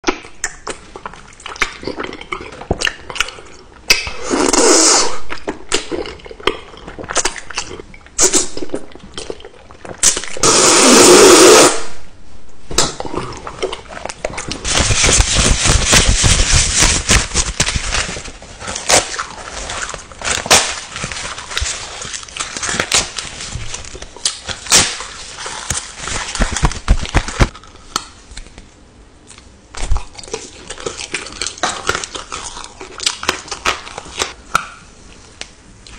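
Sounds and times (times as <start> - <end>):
crackly paper rustling: 14.0 - 27.6.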